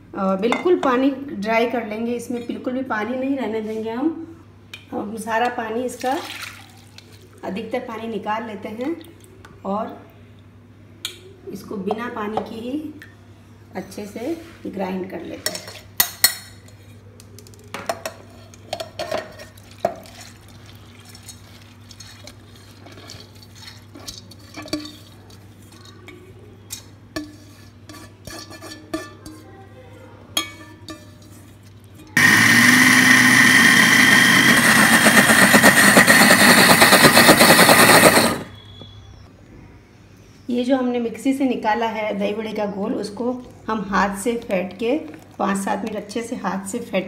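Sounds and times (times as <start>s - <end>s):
mixer grinder running: 32.2s - 38.5s.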